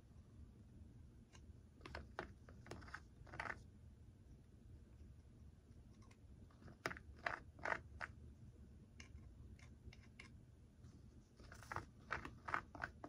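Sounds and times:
stick scraping and tapping glue: 1.3 - 3.6, 6.0 - 8.2, 11.4 - 13.0.

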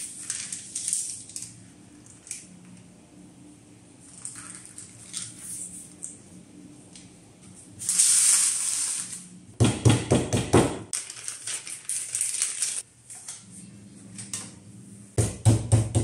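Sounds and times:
crackling rustles of sheet and paper: 0.0 - 2.5, 10.9 - 14.4
vinyl sheet peeling hiss: 7.8 - 9.4.

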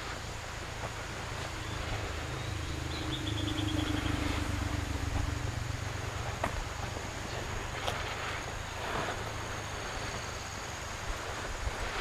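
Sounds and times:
low rumble with hum: 0.0 - 10.1
bird trilling: 1.5 - 5.6.

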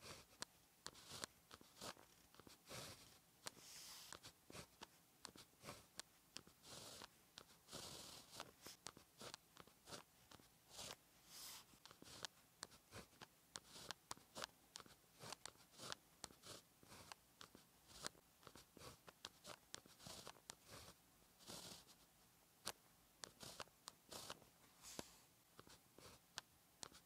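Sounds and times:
pen scratching on paper: 0.0 - 22.0, 22.6 - 27.0.

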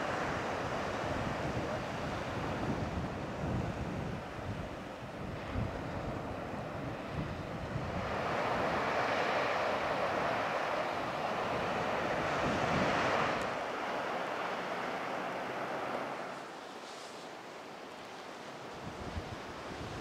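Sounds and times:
wind rumbling on microphone: 0.0 - 13.9, 18.6 - 20.0
surf washing over beach: 0.0 - 20.0.

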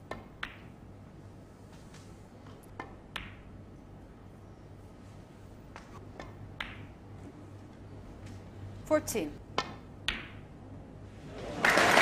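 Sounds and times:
snooker balls clicking: 0.0 - 0.8, 1.8 - 3.5, 5.7 - 7.3, 9.6 - 10.5
steady low hum: 0.0 - 11.5.

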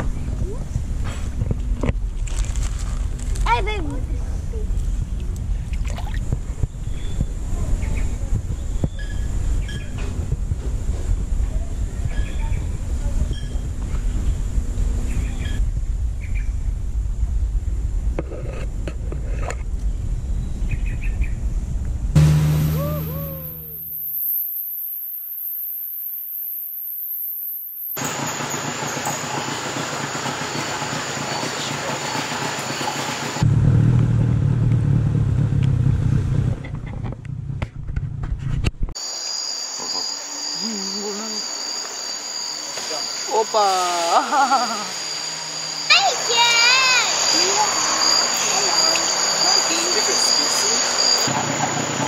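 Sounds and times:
constant low rumble: 0.0 - 24.2, 32.6 - 39.0
insects buzzing: 21.6 - 33.4, 39.0 - 52.0
outboard motor rumbling: 21.9 - 24.1, 28.0 - 38.6
short wavering call: 22.2 - 24.6
thin steady high tone: 22.2 - 28.0.

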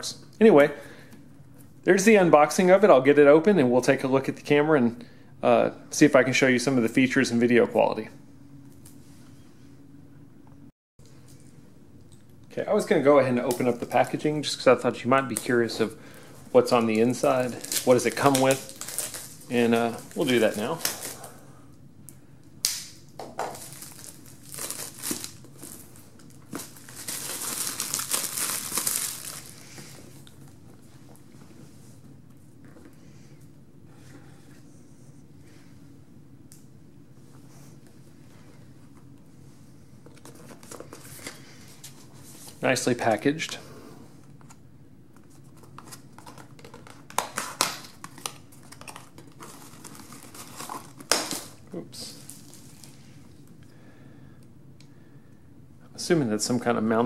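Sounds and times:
plastic shrink-wrap crinkling: 16.5 - 21.4, 23.4 - 30.4, 45.7 - 53.0.

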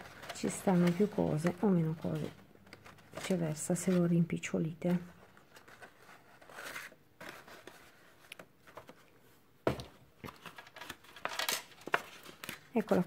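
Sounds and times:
gift box rustling: 0.0 - 13.0.

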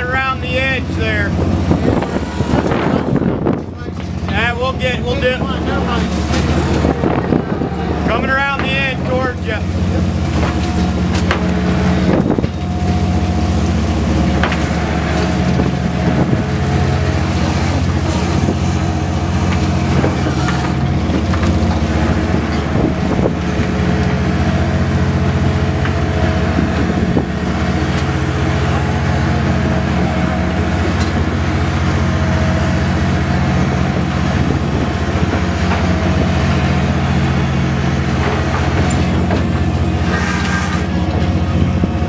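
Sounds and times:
boat engines droning: 0.0 - 42.0.

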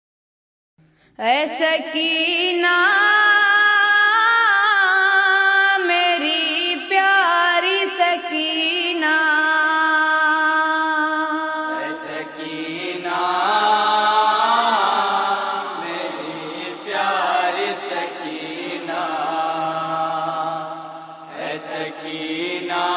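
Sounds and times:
solo voice chanting a lament: 1.2 - 22.9
lower backing voices: 11.7 - 22.9.

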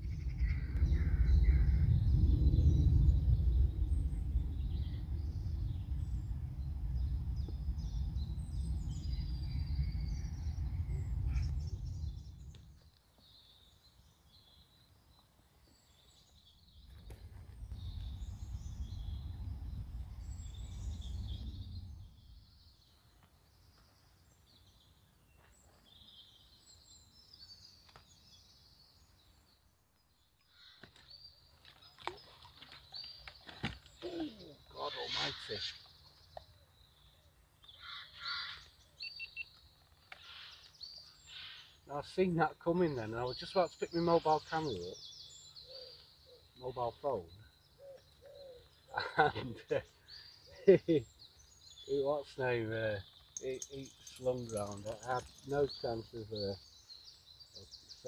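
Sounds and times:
wind buffeting microphone: 0.0 - 12.8, 16.7 - 22.6
small birds chirping: 0.0 - 58.0.

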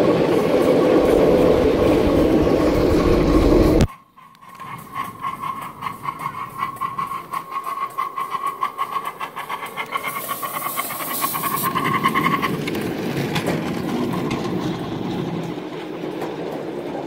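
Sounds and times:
steam hissing: 0.0 - 14.9
steam locomotive chuffing: 0.0 - 17.0
wheels rumbling on rails: 0.0 - 17.0.

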